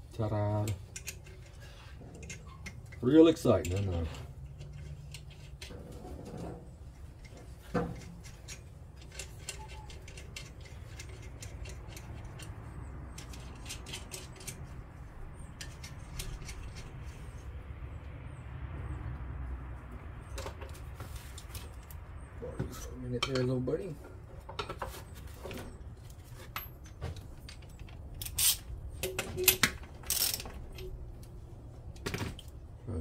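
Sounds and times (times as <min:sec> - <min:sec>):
metallic clicks of washers and nuts: 0:00.5 - 0:05.8, 0:07.2 - 0:14.8, 0:15.4 - 0:17.4, 0:26.4 - 0:31.3.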